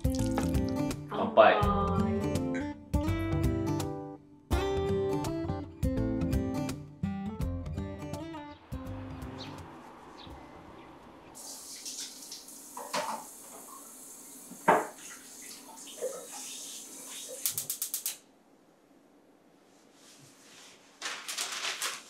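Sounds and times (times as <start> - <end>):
tap running into sink: 0.1 - 0.8, 11.5 - 16.4.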